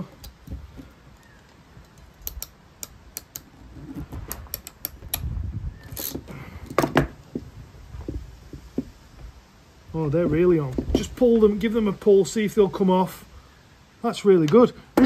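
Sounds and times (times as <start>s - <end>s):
crimping tool metallic clicks: 1.8s - 3.5s.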